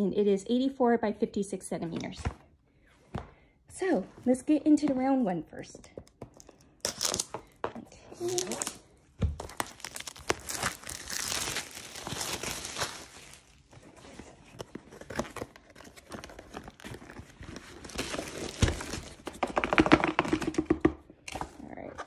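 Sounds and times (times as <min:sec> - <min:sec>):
plastic wrap tearing and crinkling: 0:06.8 - 0:07.4, 0:08.2 - 0:20.3.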